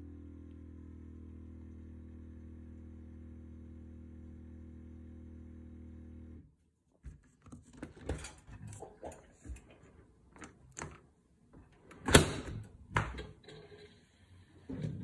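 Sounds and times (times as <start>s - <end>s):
dishwasher humming: 7.8s - 15.0s
dishwasher door clunks: 11.9s - 13.4s.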